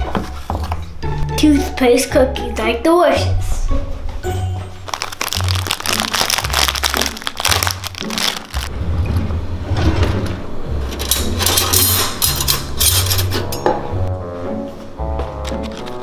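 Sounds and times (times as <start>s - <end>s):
background music bass notes: 0.0s - 16.0s
plastic packaging crinkling: 4.8s - 8.7s
metal cutlery clinking: 11.0s - 13.7s.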